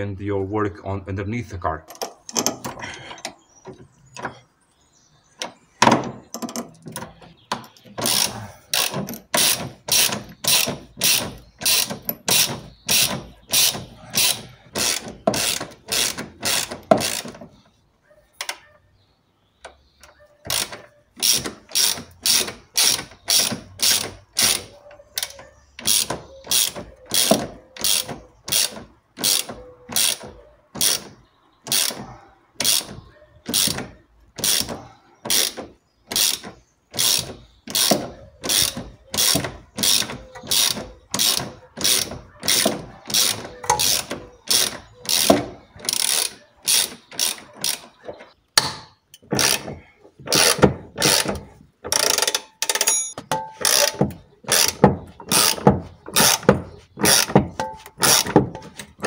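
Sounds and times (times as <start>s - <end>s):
ratchet wrench clicking: 8.0s - 17.3s, 20.5s - 30.2s, 35.3s - 47.8s, 51.9s - 55.6s.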